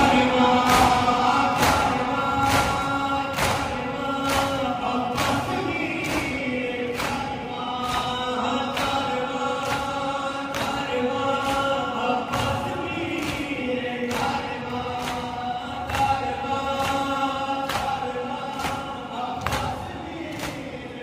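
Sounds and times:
voices chanting a lament over loudspeaker: 0:00.0 - 0:21.0.

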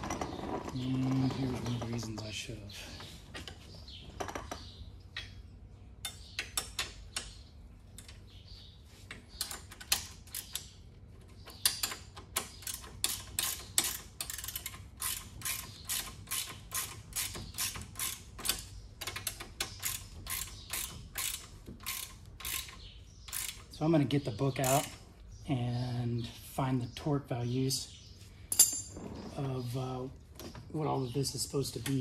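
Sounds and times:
ratcheting wrench clicking: 0:11.6 - 0:23.7, 0:24.6 - 0:25.0.

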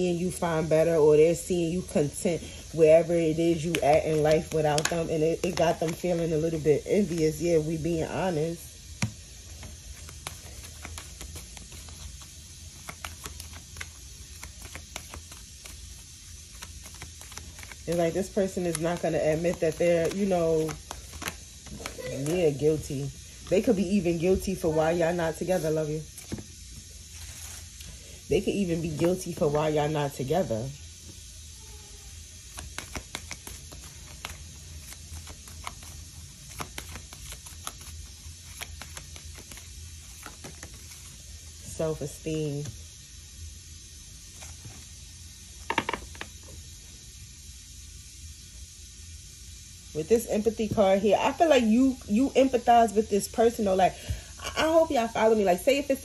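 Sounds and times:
low steady hum: 0:00.0 - 0:56.0
cards shuffled on a table: 0:03.4 - 0:07.5, 0:08.9 - 0:22.8, 0:26.2 - 0:26.5, 0:27.1 - 0:28.0, 0:32.4 - 0:41.2, 0:45.6 - 0:46.5.

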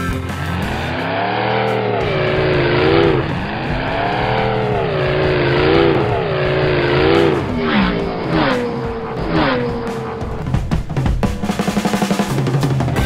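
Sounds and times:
race car engine revving: 0:00.0 - 0:12.9.

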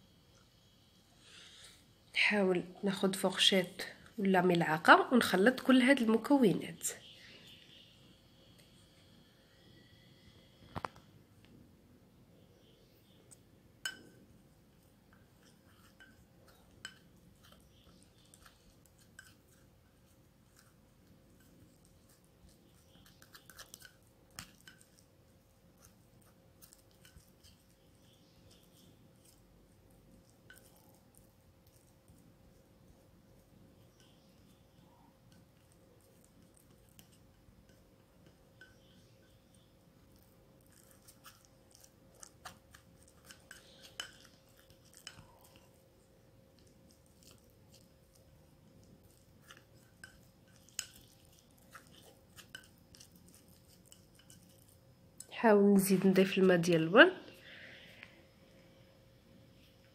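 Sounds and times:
spoon tapping bowl: 0:13.8 - 0:14.2
spoon scraping ceramic bowl: 0:15.1 - 0:25.1, 0:25.7 - 0:29.4, 0:30.2 - 0:31.9, 0:33.8 - 0:45.8, 0:46.6 - 0:54.8
plastic fork scraping ceramic bowl: 0:21.4 - 0:25.0, 0:40.6 - 0:45.7.

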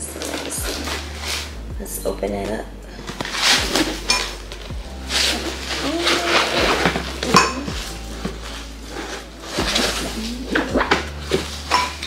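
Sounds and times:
glass tumblers clinking: 0:02.3 - 0:12.0.

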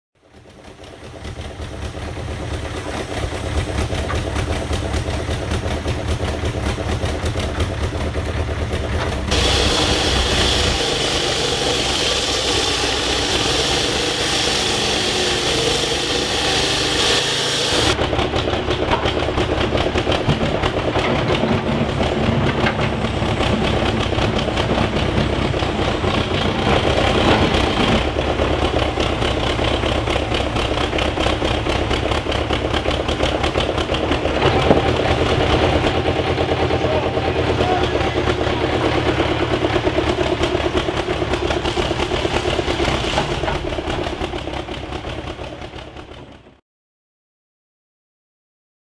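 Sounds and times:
excavator diesel engine running: 0:00.2 - 0:46.6
loud bright noise: 0:09.3 - 0:18.0.

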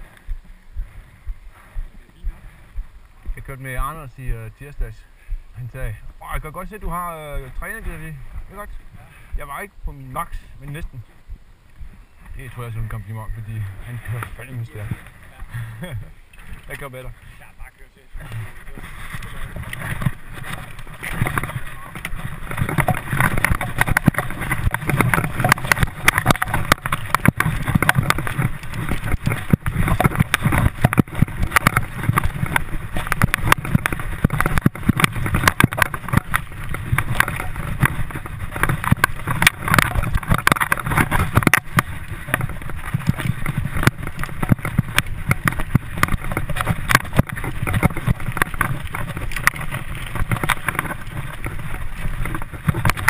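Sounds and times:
bike tyre rumble: 0:00.0 - 0:53.0
wind buffeting microphone: 0:00.0 - 0:53.0
bike rattling clicks and knocks: 0:18.2 - 0:53.0.

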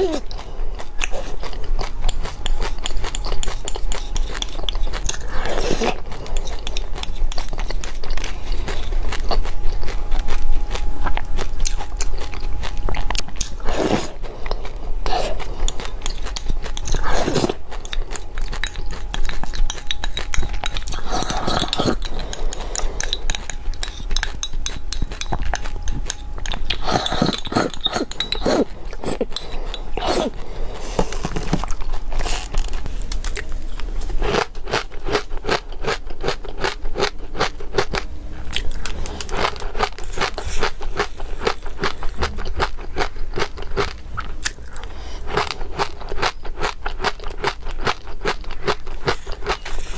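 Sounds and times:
crunchy chewing: 0:00.0 - 0:49.9
metal spoon scraping glass: 0:17.8 - 0:28.7.

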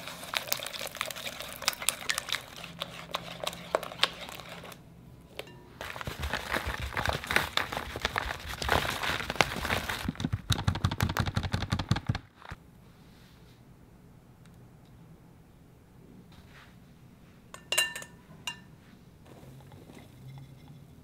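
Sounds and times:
flour pouring: 0:00.0 - 0:04.8
paper bag crinkling: 0:00.0 - 0:04.8, 0:05.8 - 0:11.0.

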